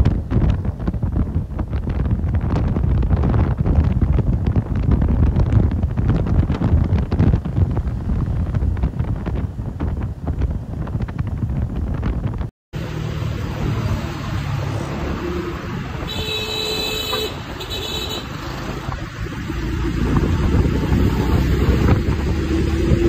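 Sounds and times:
wind buffeting microphone: 0.0s - 12.5s, 13.5s - 23.0s
motorcycle engine rumble: 0.0s - 23.0s
road noise: 0.0s - 23.0s
traffic: 0.0s - 23.0s.

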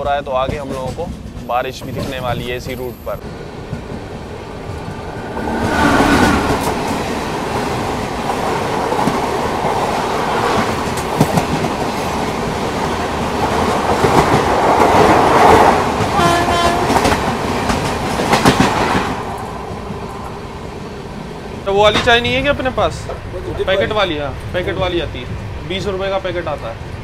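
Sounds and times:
train wheels clattering: 0.0s - 26.6s
train horn: 16.1s - 17.2s.

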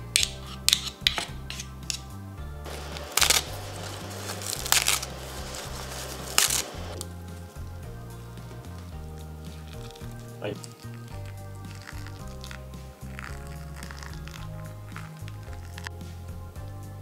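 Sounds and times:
metal spoons clicking on bowl: 0.0s - 2.1s
background music with bass line: 0.0s - 17.0s
dry seaweed tearing: 2.7s - 7.2s, 9.5s - 16.2s.

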